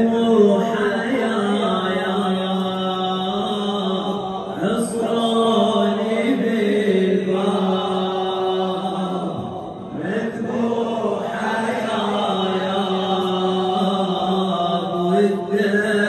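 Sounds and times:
man chanting a lament into microphone: 0.0s - 16.0s.

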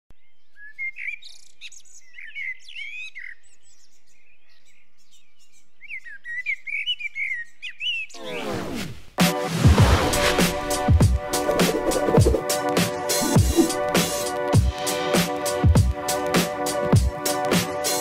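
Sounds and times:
songbirds chirping and warbling: 0.1s - 8.2s
falling electronic sweep: 9.7s - 12.4s, 13.2s - 14.0s.

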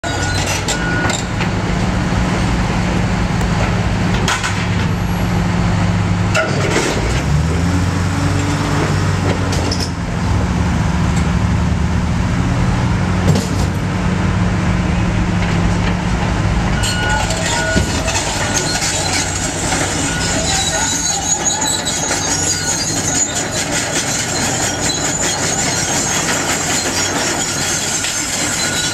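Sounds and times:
excavator diesel engine working: 0.0s - 28.9s
debris knocks and clanks: 6.3s - 7.3s, 16.8s - 28.9s.

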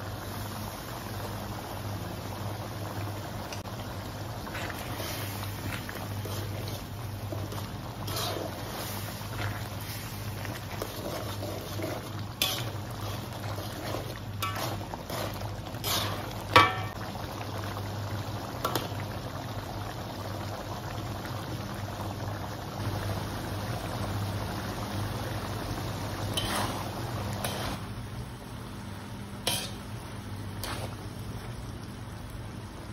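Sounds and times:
steady low hum: 0.0s - 21.0s
sauce simmering and bubbling: 0.0s - 32.9s
metal utensils clinking on wok: 15.9s - 17.0s.

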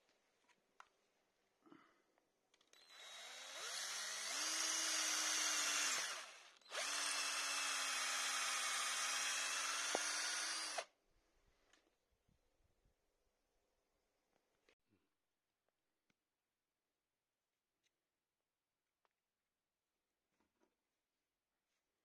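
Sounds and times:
cordless drill boring into wood: 2.7s - 10.9s.

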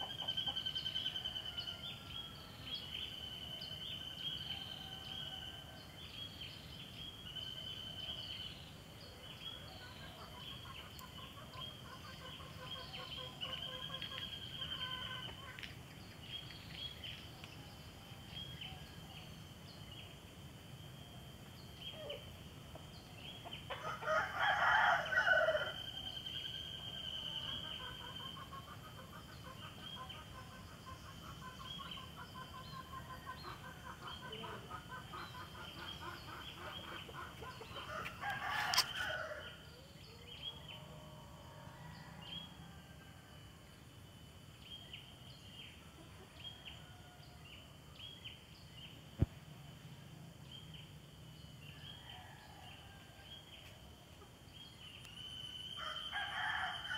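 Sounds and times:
rooster crowing: 23.8s - 26.1s, 37.8s - 39.6s, 55.7s - 56.9s.

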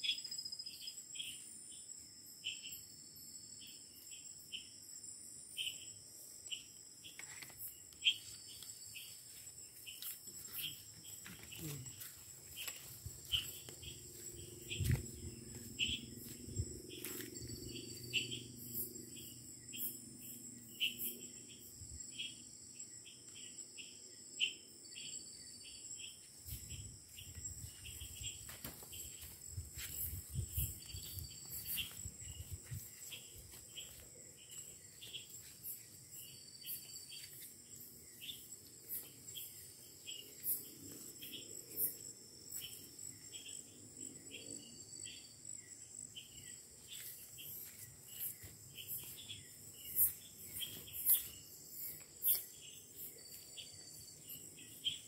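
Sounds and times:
insect chirps: 0.0s - 55.0s
insects droning: 0.0s - 55.0s.

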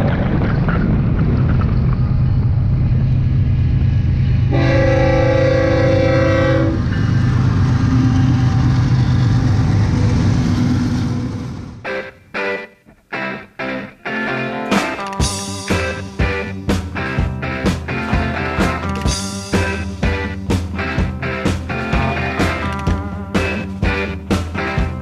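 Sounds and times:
diesel locomotive engine drone: 0.0s - 25.0s
locomotive air horn: 4.5s - 7.1s.

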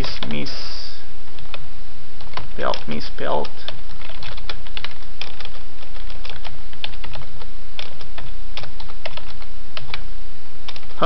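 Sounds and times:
low steady hum: 0.0s - 11.0s
keyboard keys clicking: 2.2s - 10.0s, 10.7s - 11.0s.

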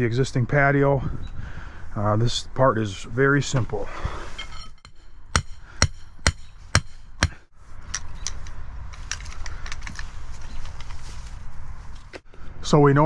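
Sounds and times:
hammer blows on metal pin: 4.4s - 7.5s.

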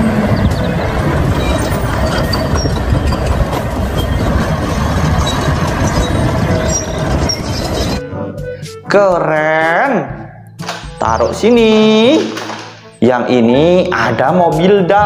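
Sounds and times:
rumbling vehicle noise with clatter: 0.0s - 8.0s.

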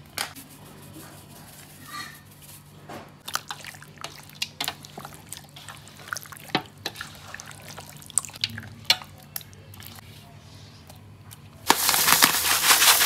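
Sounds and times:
wet squelching of mixed chicken: 3.2s - 10.6s.

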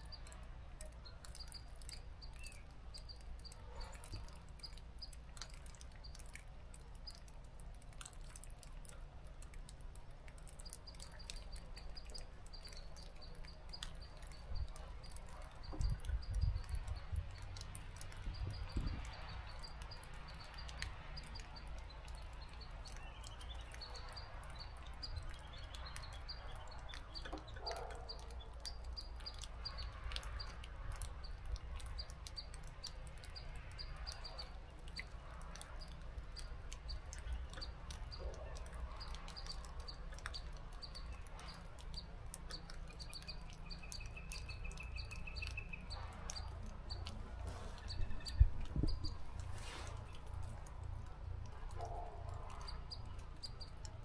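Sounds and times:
small birds chirping: 0.0s - 54.0s
bird trill: 42.6s - 47.1s.

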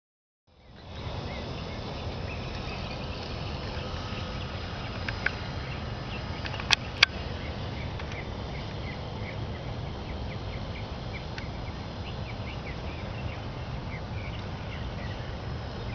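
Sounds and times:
small birds chirping: 0.5s - 15.9s
wind rumble on microphone: 0.6s - 15.9s
sharp clicks: 4.9s - 5.4s.

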